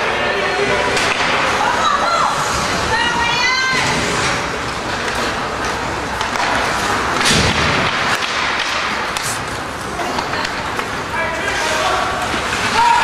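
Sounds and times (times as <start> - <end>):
arena noise: 0.0 - 13.0.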